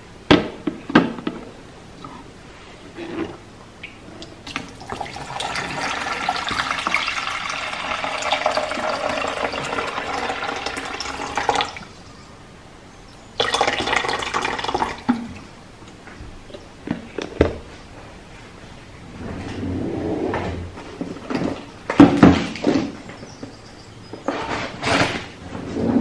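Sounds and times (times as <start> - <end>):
water pouring into a tank: 4.5 - 11.9, 13.4 - 15.3.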